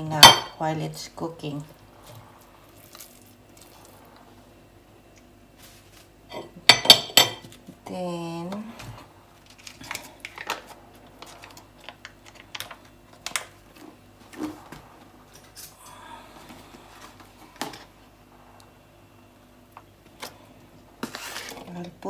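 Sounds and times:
soft rustle: 0:05.6 - 0:06.1.

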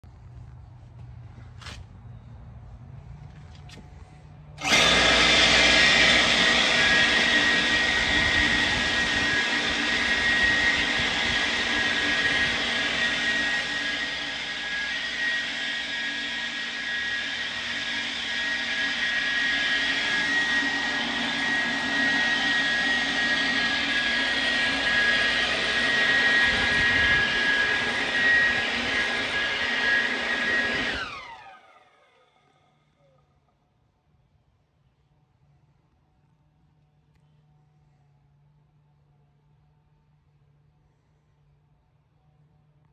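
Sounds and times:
mixer motor whining: 0:04.6 - 0:33.1.

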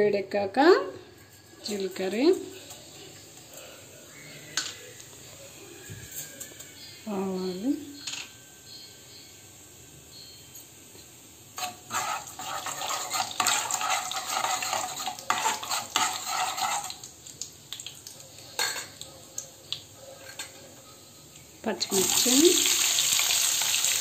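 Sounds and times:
spoon scraping metal pan: 0:11.6 - 0:17.1, 0:18.5 - 0:19.0, 0:20.0 - 0:20.9.

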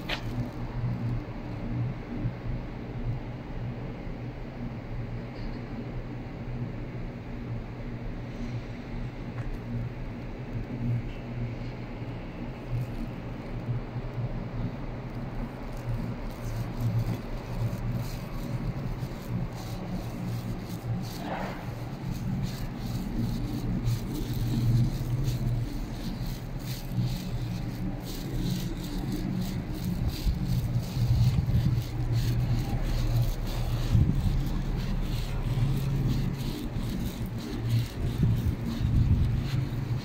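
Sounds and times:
footsteps clicking and scuffing: 0:00.0 - 0:00.6
steady low hum: 0:00.0 - 0:40.0.

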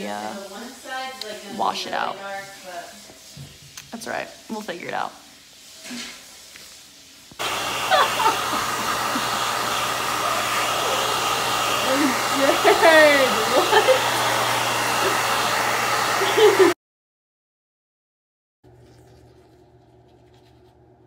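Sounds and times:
hair dryer blowing: 0:00.0 - 0:02.7, 0:07.3 - 0:16.8.

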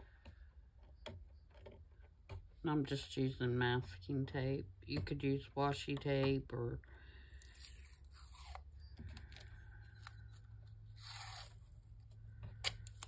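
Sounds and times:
masking tape tearing: 0:07.4 - 0:10.3, 0:10.9 - 0:12.0.

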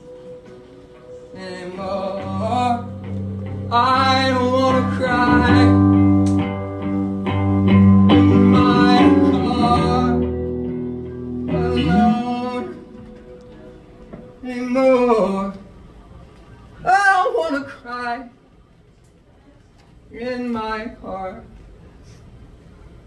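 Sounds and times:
person singing: 0:01.0 - 0:13.7
rock band playing live: 0:02.2 - 0:13.6.

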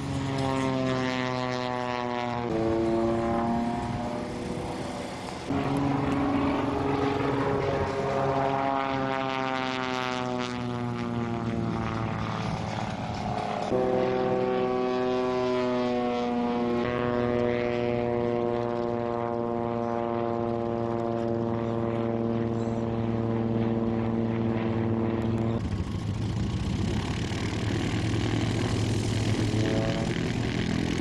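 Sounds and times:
biplane propeller engine drone: 0:00.0 - 0:31.0
propeller plane engine running: 0:00.0 - 0:31.0.

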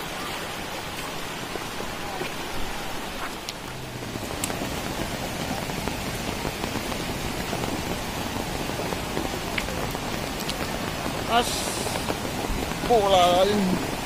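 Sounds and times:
floodwater rushing: 0:00.0 - 0:14.0
heavy rain falling: 0:00.0 - 0:14.0.

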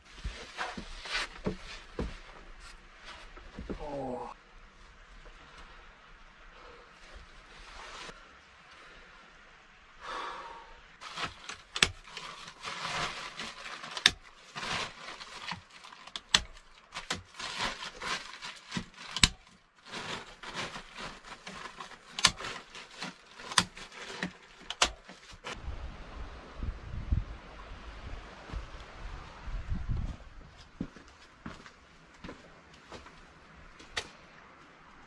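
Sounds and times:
rustling plastic sheeting: 0:11.0 - 0:25.6
wind rumble on microphone: 0:25.5 - 0:30.8.

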